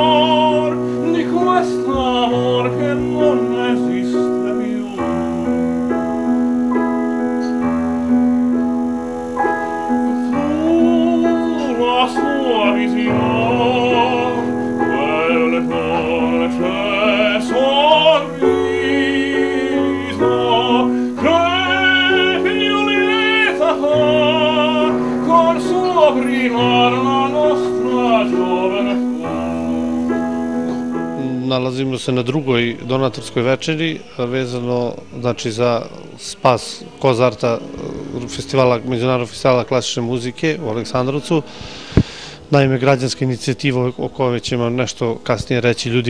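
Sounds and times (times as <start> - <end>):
operatic voice singing: 0.0 - 5.8, 10.3 - 30.2
piano accompaniment: 0.0 - 46.0.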